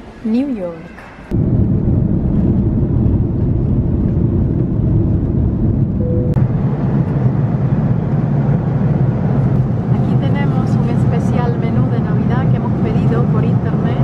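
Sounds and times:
rushing air: 0:00.9 - 0:12.5
jet engine drone in cabin: 0:01.0 - 0:14.0.

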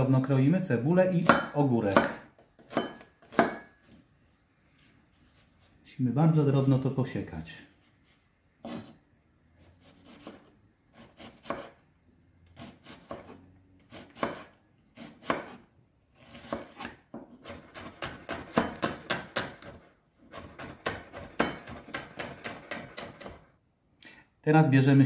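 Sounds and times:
knife chopping onion on wooden board: 0:01.0 - 0:03.8, 0:09.8 - 0:11.8, 0:12.5 - 0:15.6, 0:16.2 - 0:23.5.

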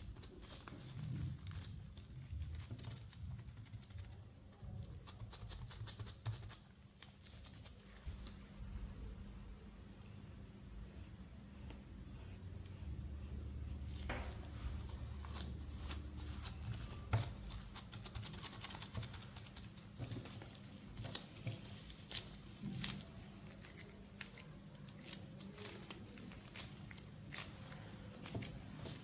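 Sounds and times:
dough being handled on a mat: 0:10.5 - 0:29.0.

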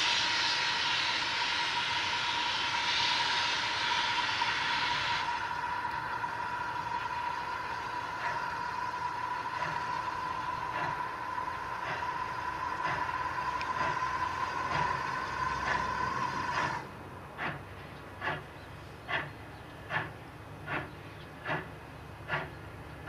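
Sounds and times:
loud steam hiss: 0:00.0 - 0:17.6
locomotive exhaust chuffs: 0:00.0 - 0:23.0.

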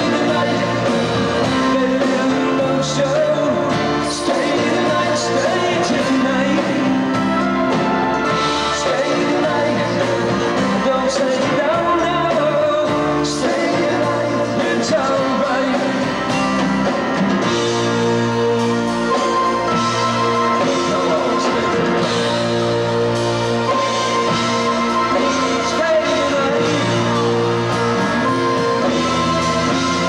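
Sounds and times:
live rock band playing: 0:00.0 - 0:30.0
man singing: 0:00.0 - 0:30.0.

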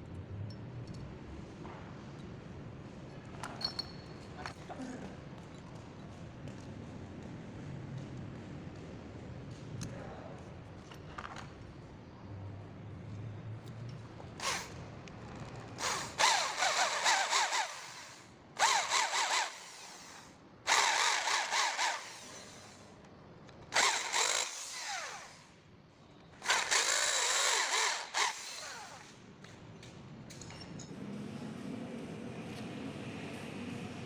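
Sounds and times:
electric drill running: 0:14.4 - 0:14.8, 0:15.8 - 0:22.9, 0:23.7 - 0:25.5, 0:26.4 - 0:29.1.

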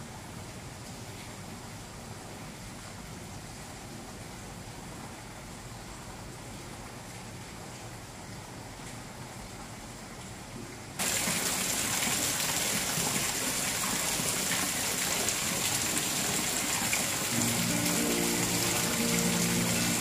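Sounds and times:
water rushing down stone: 0:11.0 - 0:20.0
faint music: 0:17.3 - 0:20.0.

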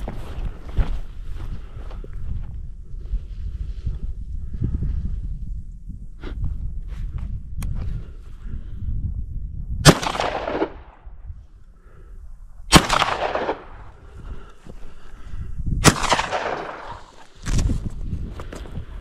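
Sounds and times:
shotgun shots with echo: 0:09.8 - 0:10.9, 0:12.7 - 0:13.8, 0:15.8 - 0:17.1.

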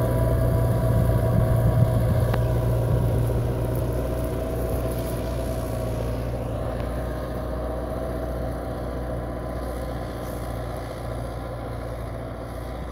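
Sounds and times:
tractor diesel engine under load: 0:00.0 - 0:12.9.

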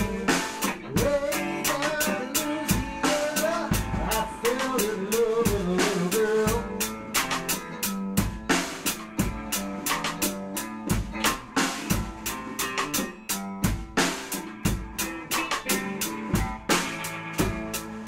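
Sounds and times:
held bass line: 0:00.0 - 0:18.0
psychedelic rock instrumental: 0:00.0 - 0:18.0
bass drum and snare strikes: 0:05.5 - 0:18.0.

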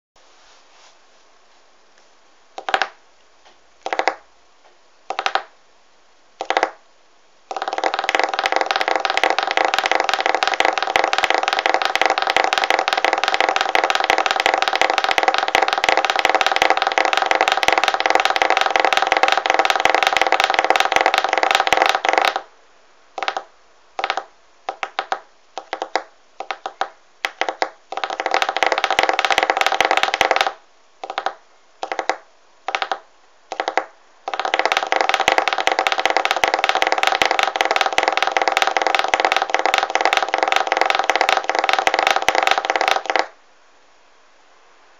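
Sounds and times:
fingertips drumming on wood: 0:02.6 - 0:03.0, 0:03.8 - 0:04.2, 0:05.1 - 0:05.5, 0:06.4 - 0:06.8, 0:07.5 - 0:22.5, 0:23.2 - 0:43.3.

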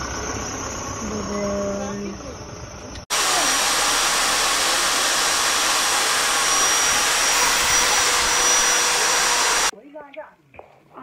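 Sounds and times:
electric power tool whirring: 0:03.1 - 0:09.7.

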